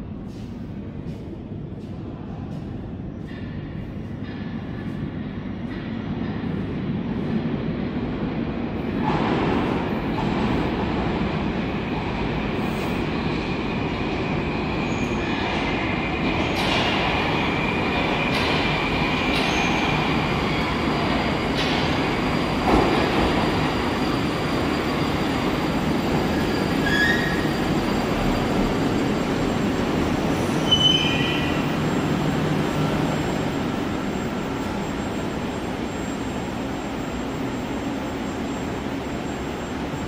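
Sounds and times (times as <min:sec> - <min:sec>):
train rumble: 0:00.0 - 0:40.0
wheel squeal: 0:24.1 - 0:28.3, 0:30.4 - 0:32.0.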